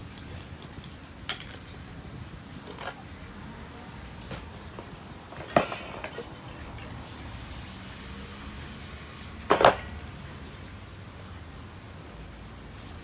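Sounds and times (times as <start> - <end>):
spray cans clinking: 5.3 - 10.1
spray can hissing: 7.0 - 9.4.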